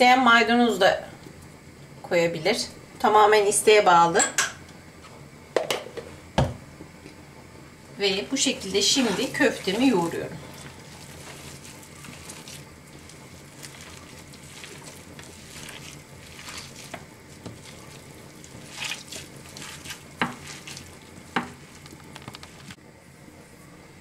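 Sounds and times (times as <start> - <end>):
wet squishing of kneaded meat: 8.5 - 22.8.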